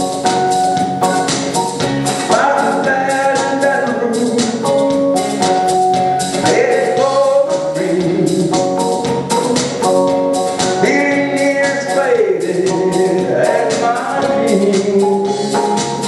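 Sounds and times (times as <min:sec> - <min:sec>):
keyboard chords: 0:00.0 - 0:16.0
steady drum beat: 0:00.0 - 0:16.0
man singing country song: 0:02.2 - 0:05.0, 0:06.4 - 0:08.8, 0:10.8 - 0:16.0.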